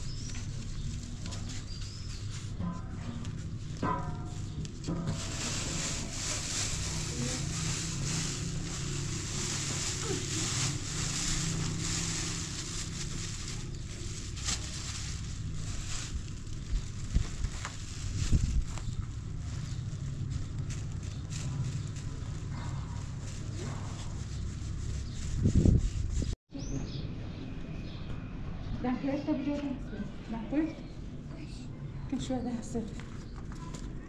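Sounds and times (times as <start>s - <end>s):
flour rustling through sieve: 0.0s - 26.4s.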